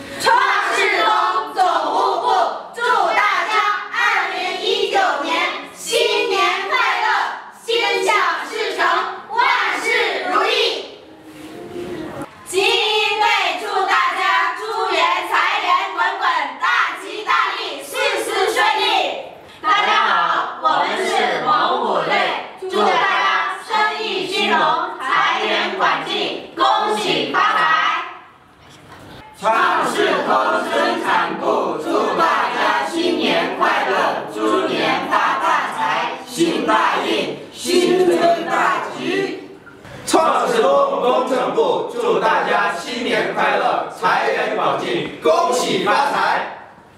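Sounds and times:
women singing in unison: 0:00.0 - 0:10.6, 0:12.4 - 0:28.3, 0:29.4 - 0:39.6.

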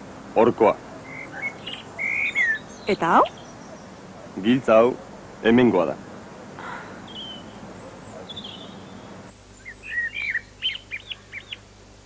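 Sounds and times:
small bird chirping: 0:00.9 - 0:04.5, 0:06.6 - 0:11.7.

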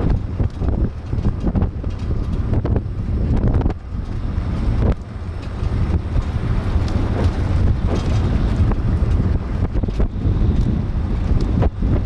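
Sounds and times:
car road and engine noise: 0:00.0 - 0:12.0
wind buffeting a microphone: 0:00.0 - 0:12.0
knocks from road bumps: 0:04.7 - 0:11.7.

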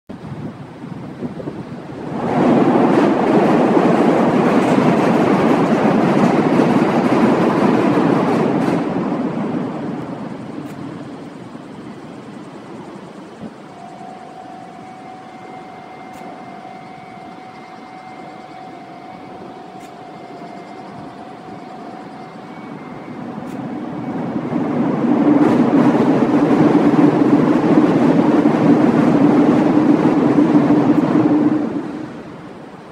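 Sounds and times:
faint steady whine: 0:05.3 - 0:32.9.

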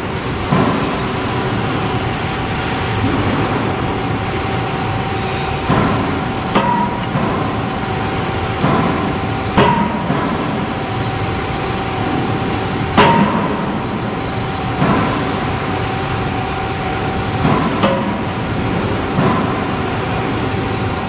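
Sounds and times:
machine hum: 0:00.0 - 0:21.0
hammer striking metal: 0:05.7 - 0:07.6, 0:08.6 - 0:10.7, 0:13.0 - 0:13.8.

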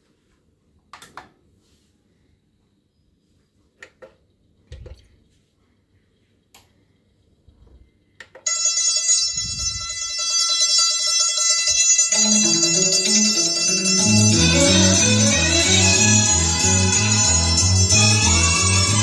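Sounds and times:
music from stereo: 0:10.6 - 0:19.0.

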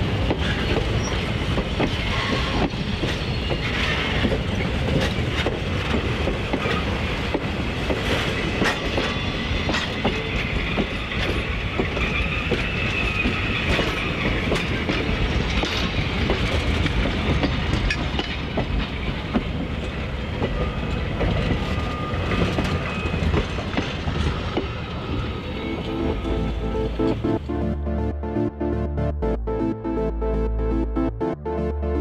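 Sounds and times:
wheels clicking over rail joints: 0:00.0 - 0:25.4
train coaches rumbling past: 0:00.0 - 0:28.2.

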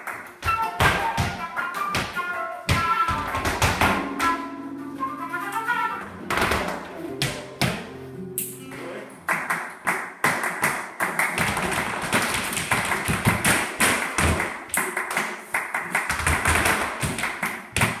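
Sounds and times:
shoes tapping and stamping on floor: 0:00.0 - 0:04.4, 0:09.3 - 0:18.0
flamenco guitar: 0:00.0 - 0:18.0.

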